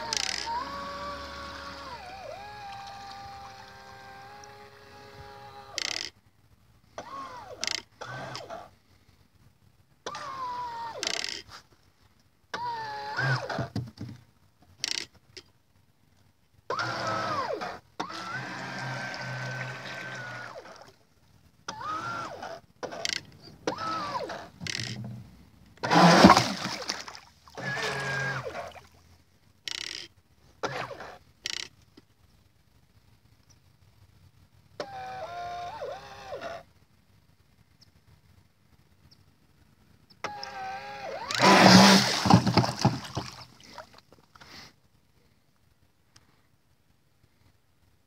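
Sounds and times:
electric motor whine: 0.0 - 5.9, 16.7 - 20.7, 27.6 - 28.5, 40.3 - 42.6
jet pump churning water: 0.0 - 5.9, 16.7 - 20.9, 21.7 - 23.0, 23.6 - 24.9, 25.8 - 28.8, 40.2 - 43.6
loud splash: 26.1 - 27.3, 41.6 - 43.8
jet pump spraying water: 41.2 - 43.3.

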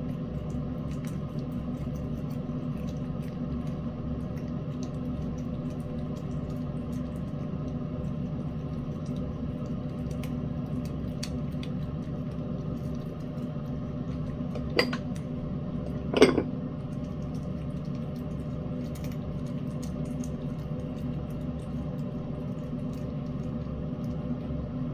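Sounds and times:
cat eating wet food: 0.0 - 24.9
steady low hum: 0.0 - 24.9
metal spoon knocking glass bowl: 14.7 - 15.0.

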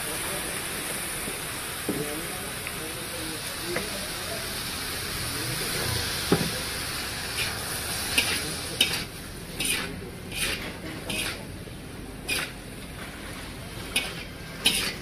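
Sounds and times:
noodles sizzling in a wok: 0.0 - 15.0
metal spatula scraping wok: 7.0 - 11.5, 12.2 - 15.0.

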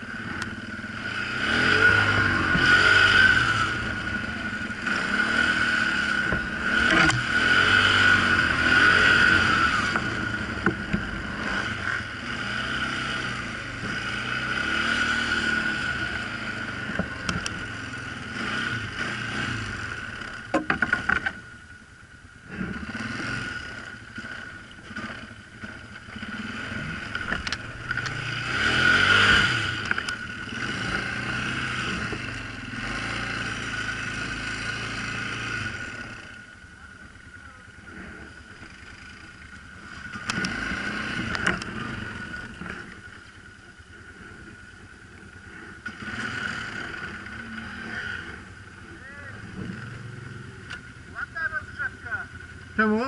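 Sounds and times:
atv engine revving: 0.0 - 53.0.

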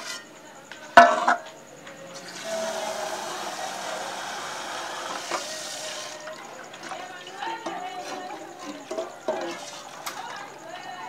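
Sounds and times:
tap water running into pot: 2.2 - 7.0.

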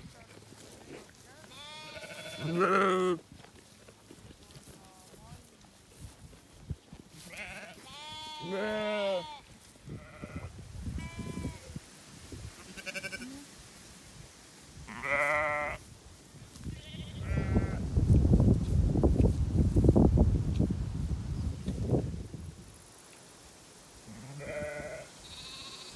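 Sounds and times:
sheep bleating: 1.4 - 3.2, 7.2 - 11.7, 12.7 - 13.4, 14.9 - 15.8, 16.8 - 17.8, 24.1 - 25.9.

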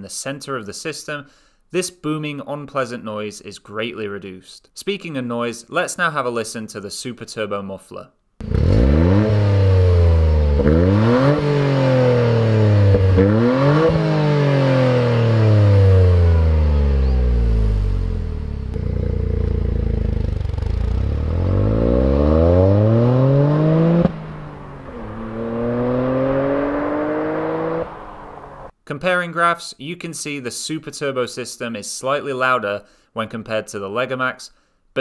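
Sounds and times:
car engine revving: 8.4 - 28.7
distant rising engine note: 11.1 - 28.7.

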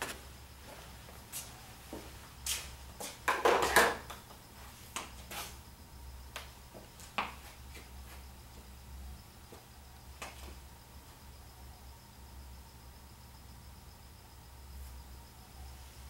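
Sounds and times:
footsteps shuffling: 0.0 - 3.2, 4.5 - 5.6, 6.4 - 8.7.

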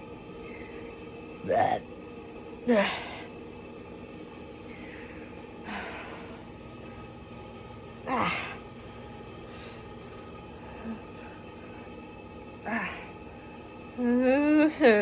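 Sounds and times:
woman whimpering: 1.5 - 1.8.

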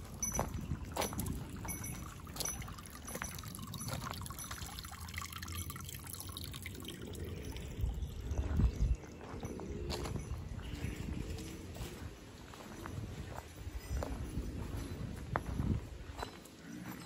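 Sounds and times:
water trickling into stone basin: 0.0 - 11.9.

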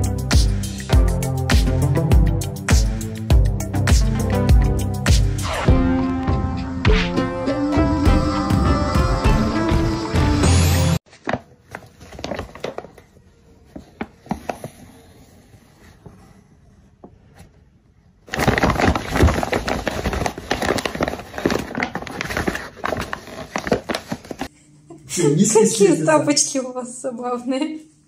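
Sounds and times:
paper bag crinkling: 11.1 - 13.3, 18.2 - 24.5.

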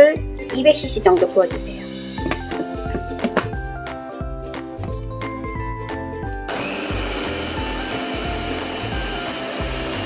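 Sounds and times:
food processor motor grinding: 6.5 - 10.0.

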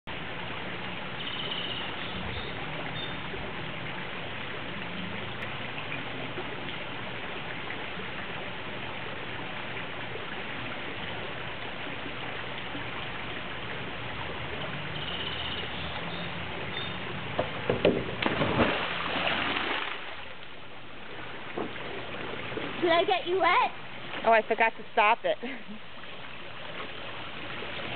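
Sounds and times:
water churning: 0.1 - 27.9
person diving into pool splash: 17.7 - 20.4.

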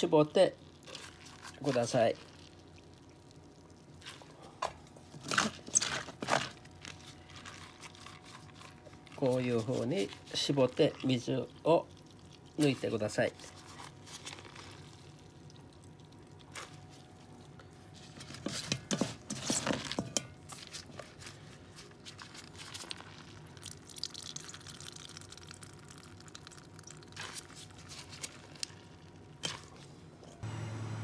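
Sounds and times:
water dripping into a colander: 23.2 - 27.2.

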